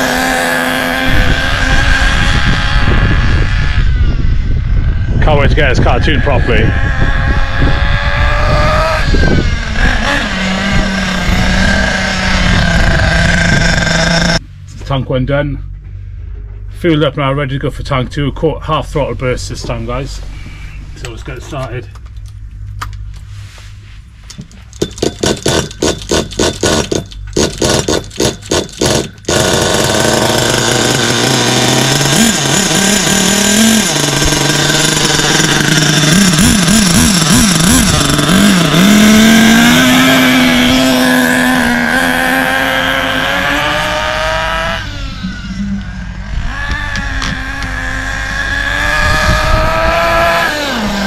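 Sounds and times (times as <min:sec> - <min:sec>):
small nitro engine running: 0:00.0 - 0:05.1, 0:05.8 - 0:14.4, 0:25.4 - 0:51.0.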